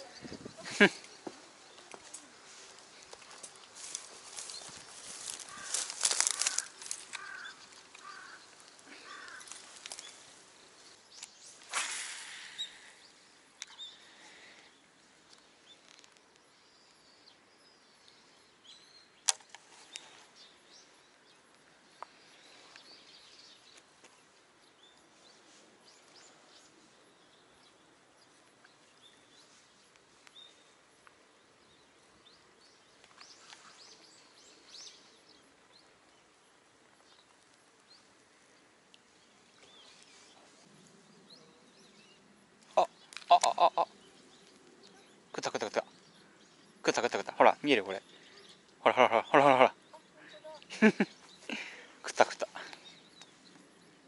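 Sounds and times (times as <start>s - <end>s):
faint bird chirps: 0.0s - 54.0s
rustling through grass: 0.2s - 12.6s
sharp click: 19.2s - 19.6s.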